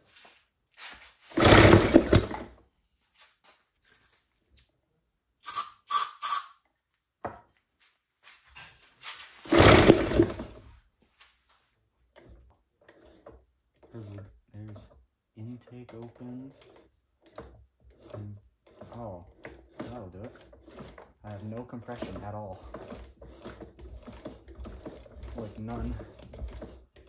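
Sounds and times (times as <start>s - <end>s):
small engine cranking: 1.3s - 2.5s, 9.5s - 10.6s, 16.1s - 27.0s
aerosol spray hissing: 5.4s - 6.5s.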